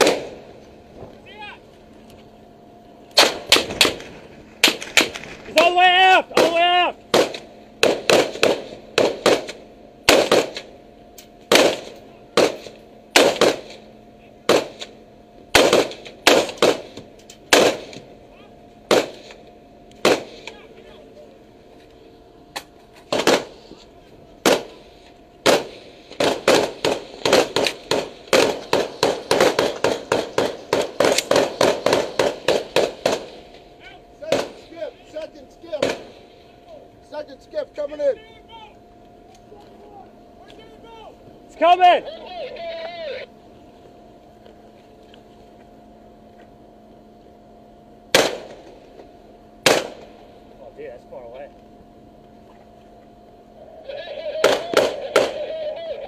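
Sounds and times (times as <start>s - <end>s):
rifle gunshots: 0.0s - 0.5s, 3.2s - 5.6s, 6.4s - 10.7s, 11.5s - 18.1s, 18.9s - 19.4s, 20.0s - 20.6s, 23.1s - 23.6s, 24.4s - 24.8s, 25.4s - 33.6s, 34.2s - 34.7s, 35.8s - 36.3s, 48.1s - 48.8s, 49.6s - 50.2s, 54.3s - 55.7s.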